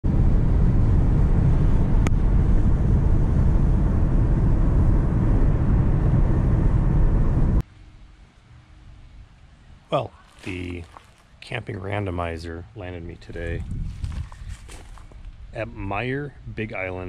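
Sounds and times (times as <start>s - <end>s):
tyre and wind noise in car: 0.0s - 7.6s, 13.3s - 15.6s.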